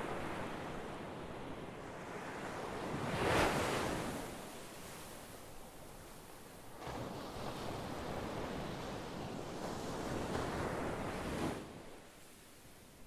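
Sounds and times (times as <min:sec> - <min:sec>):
ocean surf waves: 0:00.0 - 0:06.0.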